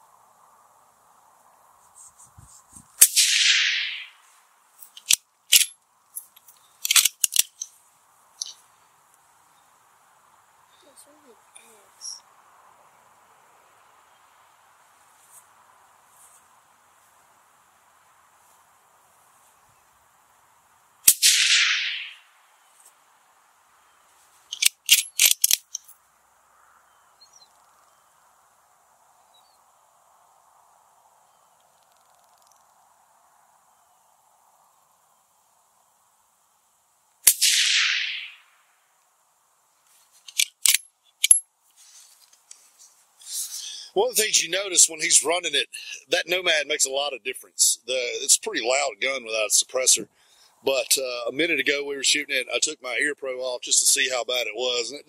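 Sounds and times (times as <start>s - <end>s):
faint insects buzzing: 0.0s - 55.0s
suppressed rifle shot: 3.0s - 4.1s, 21.1s - 22.2s, 37.2s - 38.4s
rifle bolt metallic clicks: 4.9s - 5.8s, 6.4s - 7.7s, 24.5s - 25.9s, 40.3s - 41.4s.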